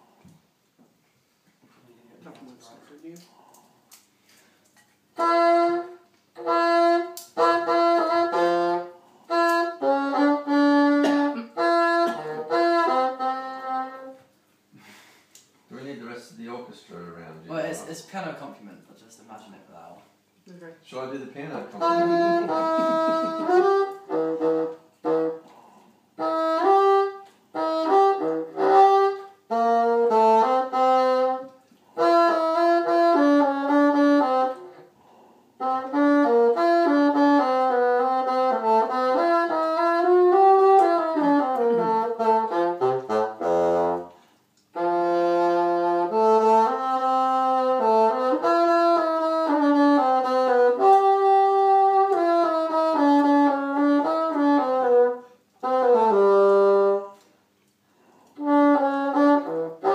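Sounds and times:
solo bassoon melody: 5.2 - 14.3, 21.6 - 25.5, 26.2 - 35.0, 35.6 - 57.3, 58.4 - 59.9.

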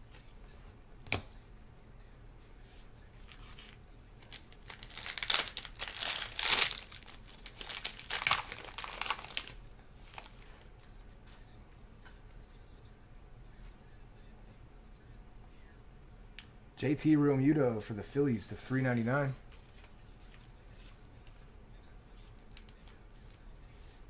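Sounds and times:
foil wrapper crinkling and tearing: 3.3 - 10.6.

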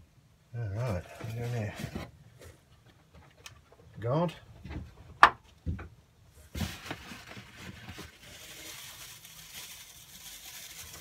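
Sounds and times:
plastic packing rustling: 6.4 - 11.0.

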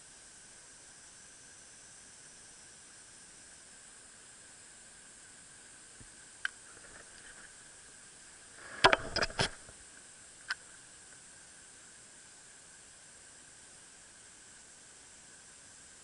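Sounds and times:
faint hiss: 0.0 - 16.0.

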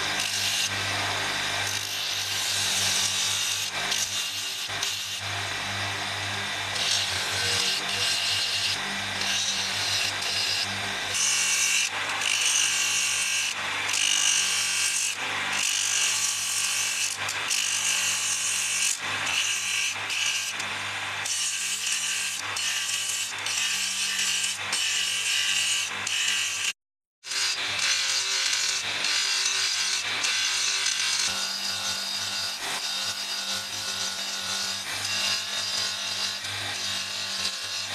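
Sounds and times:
drum sander motor hum: 0.0 - 12.4.

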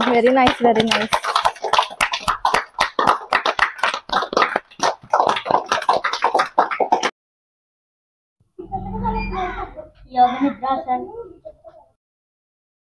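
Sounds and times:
group hand clapping: 0.0 - 7.2.

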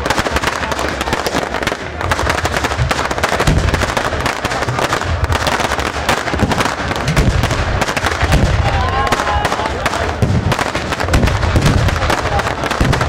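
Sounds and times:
fireworks bangs and crackling: 0.0 - 13.0
deep booms: 2.7 - 9.1, 9.8 - 13.0.

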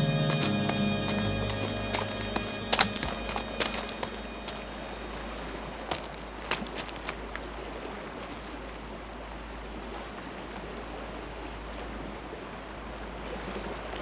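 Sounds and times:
footsteps on stones: 0.0 - 7.5
river water rushing: 0.0 - 14.0.

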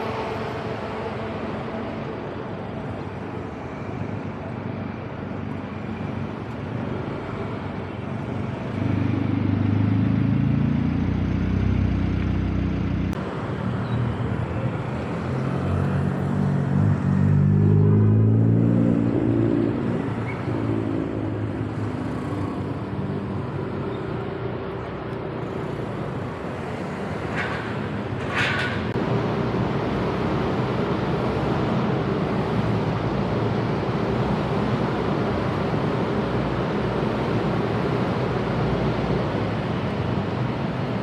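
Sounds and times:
road noise: 0.0 - 41.0
vehicle engine speeding up: 8.7 - 13.2, 15.0 - 23.0.

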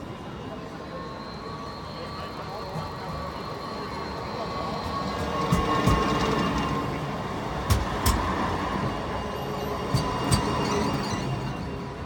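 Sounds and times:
tram rolling rumble: 0.0 - 12.0
tram wheels clicking over rail joints: 7.6 - 8.5.

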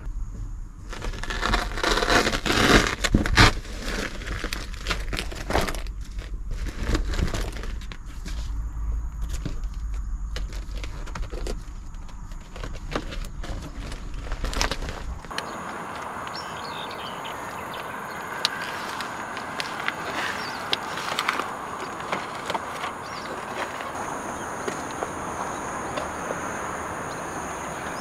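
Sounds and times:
low steady rumble: 0.0 - 18.1
cardboard rustling and crinkling: 0.9 - 15.5, 18.3 - 25.1.

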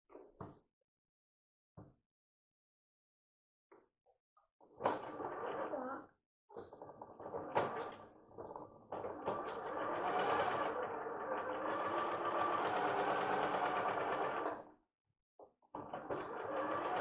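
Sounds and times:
sewing machine stitching: 8.9 - 14.6, 15.8 - 17.0.

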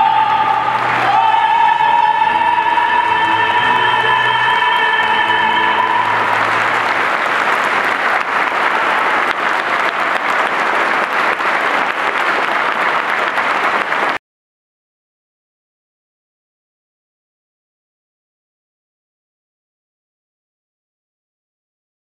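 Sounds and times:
woman singing: 0.0 - 6.3
tenor singing: 0.0 - 7.0
audience applauding: 0.0 - 14.2.

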